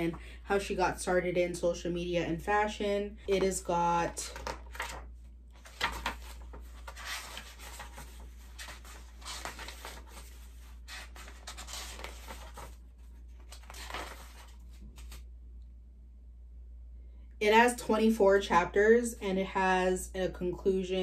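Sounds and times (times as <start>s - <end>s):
book pages turning: 3.3s - 15.3s.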